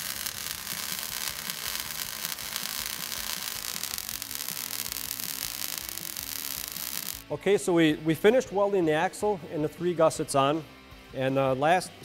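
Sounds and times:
welding arc hissing crackle: 0.0s - 7.3s.

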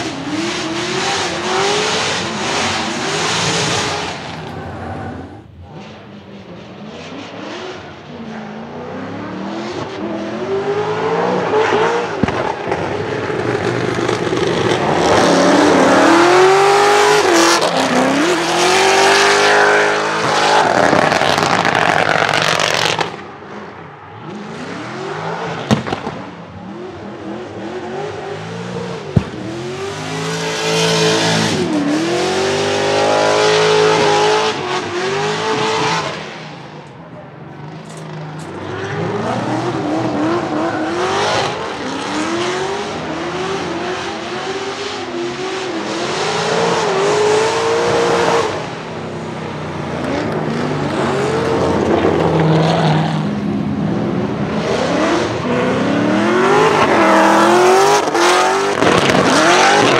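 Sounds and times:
car engine revving: 0.0s - 59.9s
exhaust pops: 12.2s - 15.2s, 25.6s - 26.3s.

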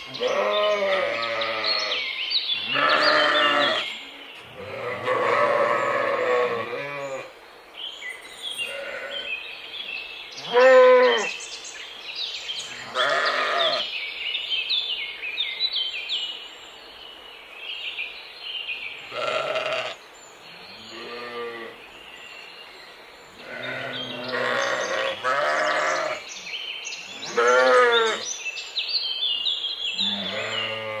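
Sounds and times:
birds chirping: 0.0s - 31.0s
sheep bleating: 0.1s - 2.0s, 2.6s - 3.9s, 4.6s - 7.3s, 8.7s - 9.3s, 10.5s - 11.3s, 12.8s - 13.8s, 19.1s - 20.0s, 20.9s - 21.7s, 23.4s - 26.2s, 27.3s - 28.2s, 30.0s - 31.0s.

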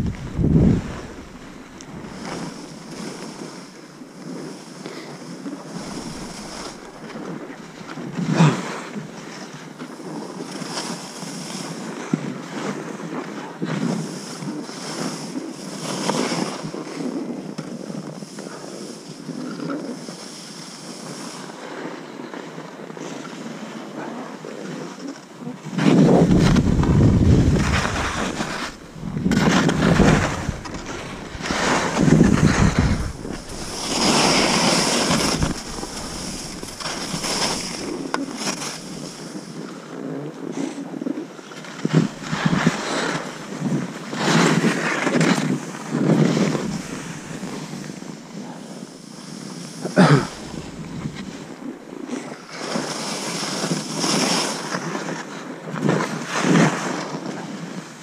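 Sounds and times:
wind buffeting microphone: 0.0s - 3.6s, 5.7s - 8.4s, 25.8s - 39.7s, 41.8s - 48.4s, 50.2s - 52.0s
skis hissing through snow: 0.0s - 3.7s, 4.4s - 8.2s, 25.8s - 39.6s, 41.8s - 48.0s, 48.8s - 51.5s.

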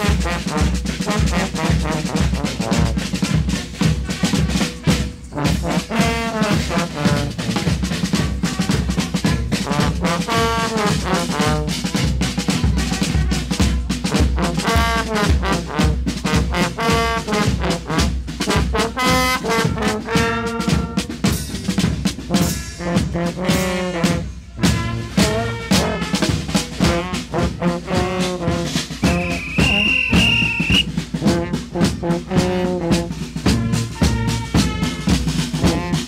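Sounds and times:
brass band playing: 0.0s - 36.0s
steady drum beat: 0.0s - 36.0s.

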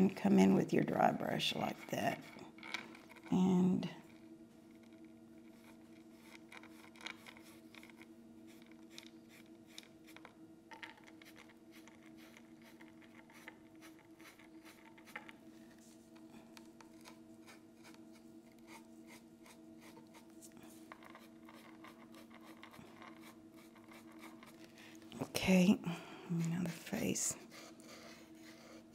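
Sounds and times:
steady low hum: 0.0s - 28.9s
paintbrush scratching and tapping: 5.4s - 16.0s, 16.8s - 24.7s.

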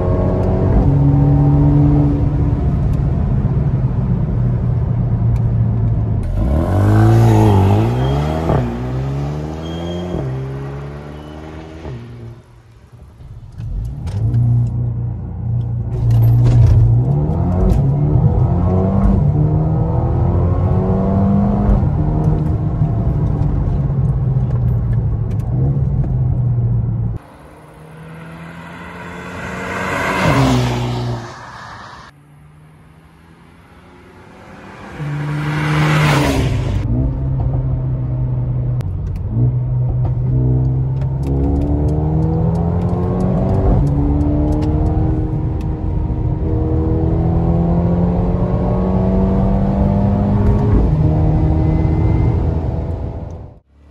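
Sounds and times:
car passing loudly: 27.2s - 36.8s
car engine accelerating in cabin: 34.9s - 53.9s.

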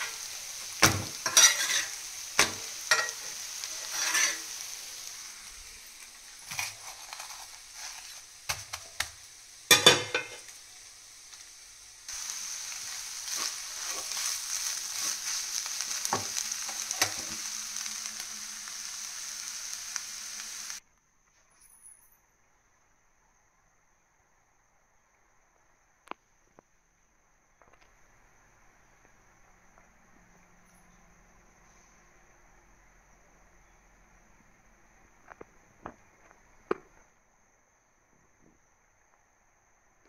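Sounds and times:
food sizzling in a pan: 0.0s - 20.8s, 27.6s - 37.1s
wooden spatula scraping pan: 0.9s - 4.6s, 6.4s - 8.3s, 13.2s - 15.4s.

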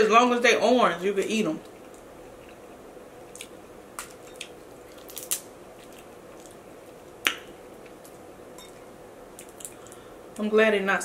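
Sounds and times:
crawfish shells cracking: 1.6s - 10.1s.

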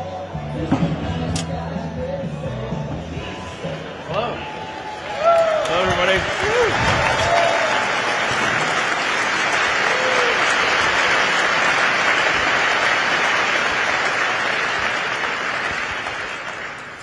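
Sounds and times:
audience applauding: 4.8s - 17.0s.

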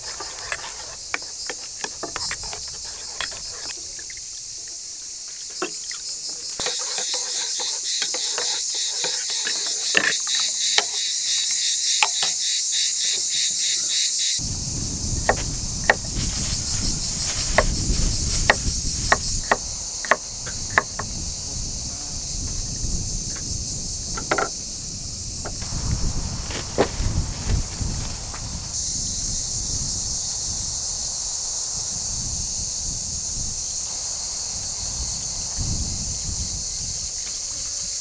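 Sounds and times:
metal spoon scraping enamel bowl: 0.0s - 4.1s, 6.6s - 11.0s
crickets chirring: 0.0s - 38.0s
low wind rumble: 14.4s - 37.2s.

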